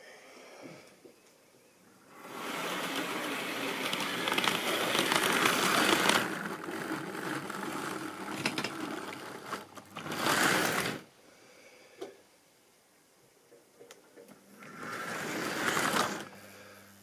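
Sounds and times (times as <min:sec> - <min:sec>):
model train whirring and rattling: 0:02.1 - 0:11.1, 0:14.6 - 0:16.4.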